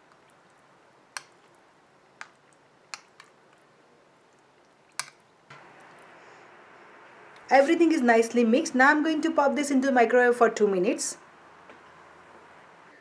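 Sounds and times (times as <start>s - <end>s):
spoon stirring wet mixture: 0.0s - 6.1s.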